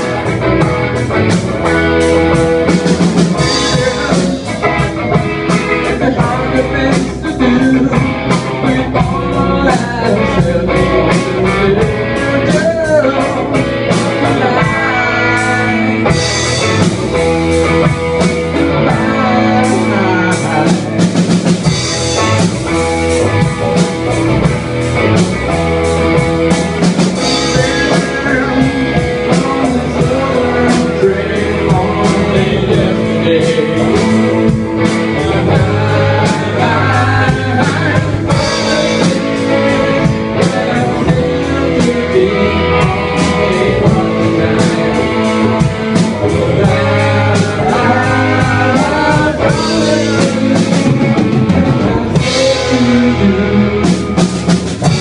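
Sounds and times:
drum kit beat: 0.0 - 55.0
electric bass: 0.0 - 55.0
electric guitar: 0.0 - 55.0
man singing into a microphone: 1.6 - 16.9, 18.2 - 22.0, 26.5 - 55.0.

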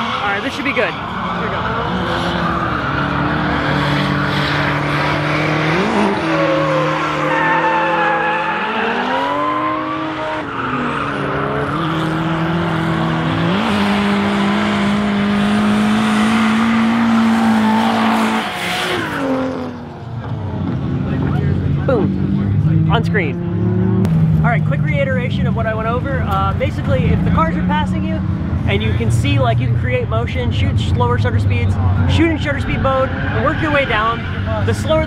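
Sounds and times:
car engines revving high: 0.0 - 35.0
tyre squeal: 5.4 - 12.2.

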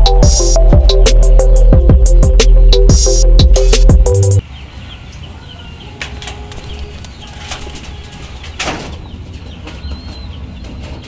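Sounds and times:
wings fluttering: 6.0 - 11.0.

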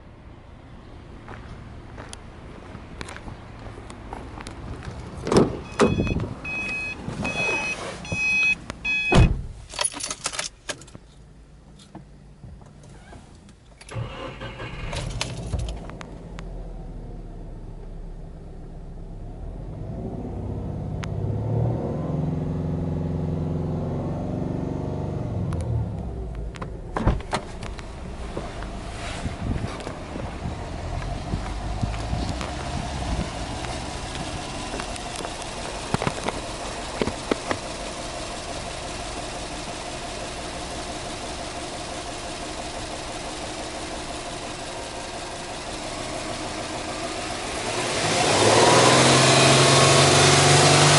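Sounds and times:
car door thumping: 5.2 - 6.4, 9.1 - 9.6, 26.6 - 27.6
car warning chime beeping: 5.6 - 9.3
car engine starting and revving: 13.9 - 50.9.

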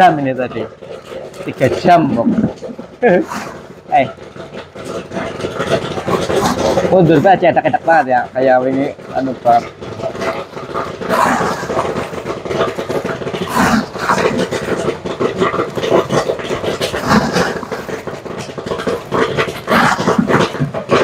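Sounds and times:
popcorn popping: 0.0 - 21.0
stirrer motor hum: 0.0 - 21.0.

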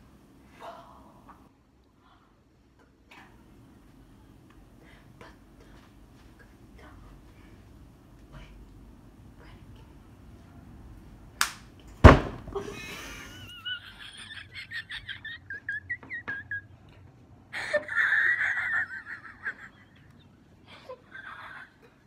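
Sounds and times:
high-pitched squealing giggles: 13.4 - 17.0, 17.6 - 22.0.

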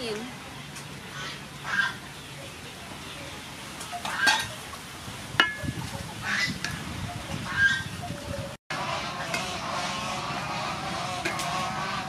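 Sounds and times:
spatula clinking against wok: 5.4 - 5.8.

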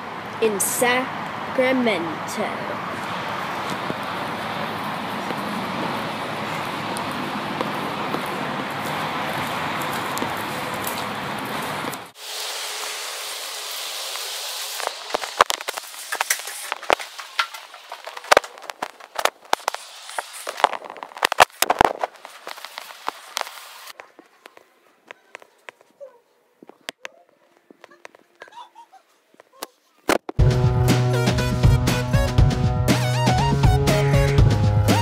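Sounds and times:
steady hiss: 12.1 - 24.0.

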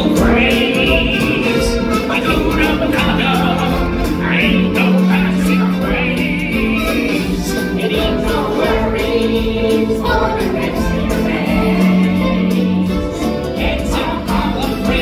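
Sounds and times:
choir singing long held notes: 0.0 - 15.0
instrumental backing: 0.0 - 15.0.

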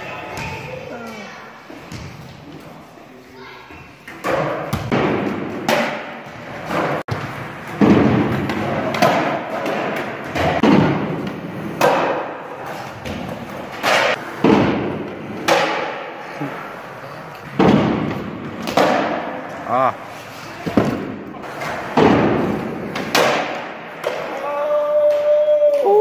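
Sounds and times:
skateboard clacking and thudding: 4.1 - 16.1, 17.4 - 19.5, 20.6 - 24.4.

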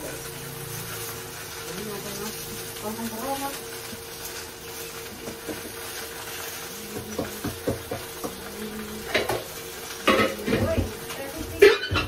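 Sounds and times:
gas stove hissing: 0.0 - 12.0
steel dishes clinking: 11.6 - 12.0.

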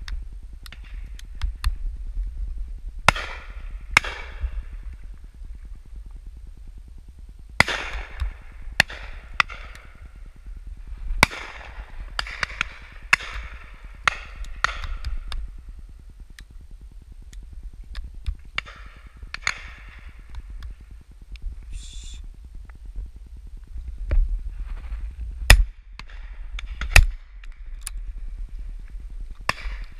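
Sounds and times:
low rumble: 0.0 - 29.9
shotguns firing with echo: 3.1 - 4.5, 7.6 - 10.1, 11.2 - 15.2.

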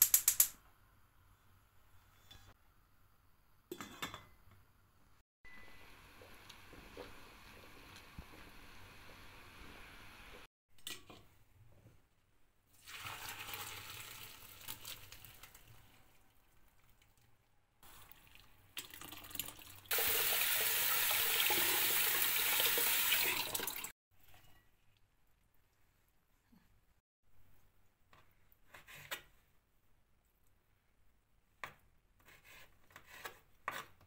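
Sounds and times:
water pouring into a sink: 12.8 - 15.8, 17.9 - 23.9.

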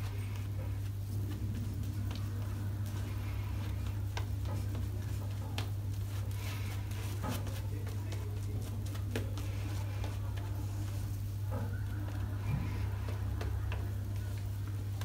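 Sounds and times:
shaving brush swishing lather: 0.0 - 11.4
steady low hum: 0.0 - 15.0.

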